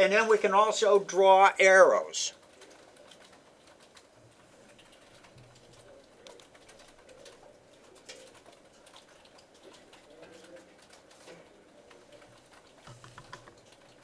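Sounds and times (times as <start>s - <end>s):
keyboard typing clicks: 4.7s - 14.0s.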